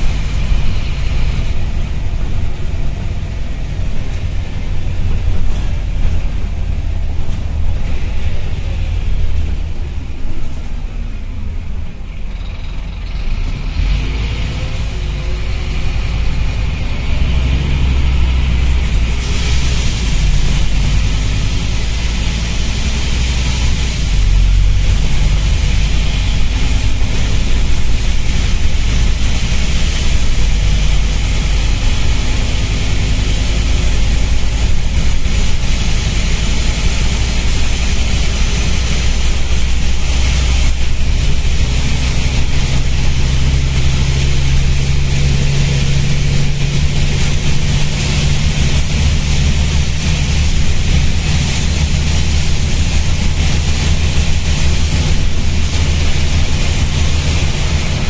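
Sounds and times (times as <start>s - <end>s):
bus engine drone: 0.0s - 58.0s
air leak hiss: 17.2s - 58.0s.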